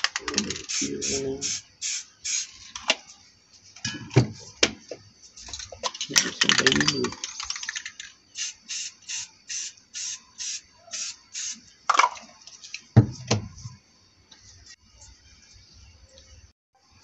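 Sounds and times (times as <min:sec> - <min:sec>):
spray can rattling: 0:00.0 - 0:02.9, 0:05.4 - 0:12.2
short spray paint hisses: 0:00.6 - 0:02.6, 0:08.4 - 0:11.6.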